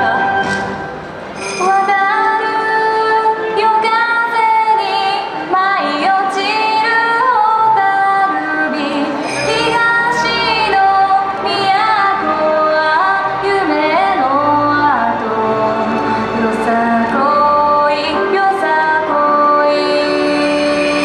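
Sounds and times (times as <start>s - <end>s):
woman singing: 0.0s - 0.4s, 1.6s - 21.0s
dance music: 0.0s - 21.0s.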